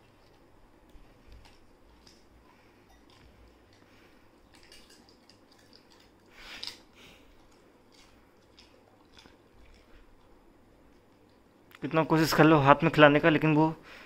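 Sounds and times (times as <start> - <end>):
dog chewing and smacking: 0.0 - 11.5.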